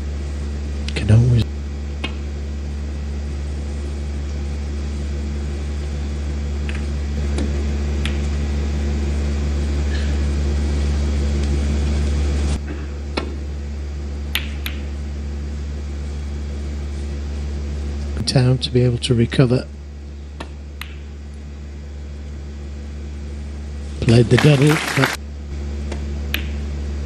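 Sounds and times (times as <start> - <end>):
steady low hum: 0.0 - 27.0
snooker balls clicking: 14.3 - 14.9, 25.9 - 26.6.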